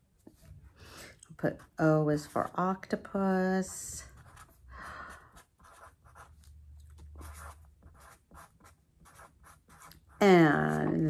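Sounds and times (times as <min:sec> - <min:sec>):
marker writing on paper: 0:04.1 - 0:04.6, 0:05.3 - 0:11.0.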